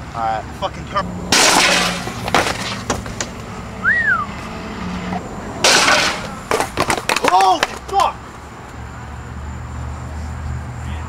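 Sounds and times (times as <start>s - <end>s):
skateboard wheels rolling on concrete: 0.0s - 10.7s
skateboard landing: 1.3s - 3.4s, 5.6s - 8.1s
whistle-like tone: 3.8s - 4.4s.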